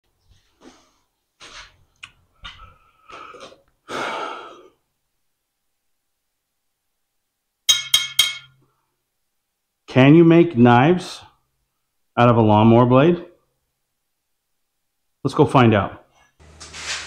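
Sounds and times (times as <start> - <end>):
rustling: 16.2 - 17.0.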